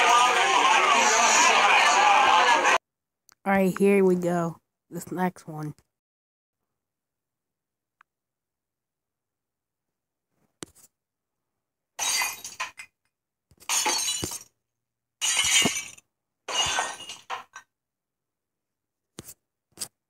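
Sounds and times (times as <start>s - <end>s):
clinks of falling glass pieces: 12.0s - 12.9s, 13.6s - 14.5s, 15.2s - 17.6s
glass shattering: 12.0s - 12.9s, 13.6s - 14.5s, 15.2s - 17.6s.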